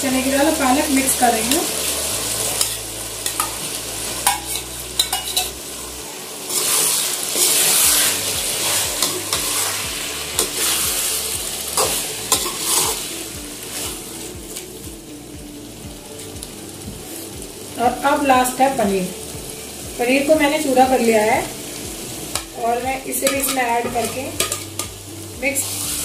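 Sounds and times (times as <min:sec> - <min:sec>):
vegetables sizzling in a pan: 0:00.0 - 0:26.0
metal spoon clinking on pan: 0:04.2 - 0:05.6, 0:23.2 - 0:24.9.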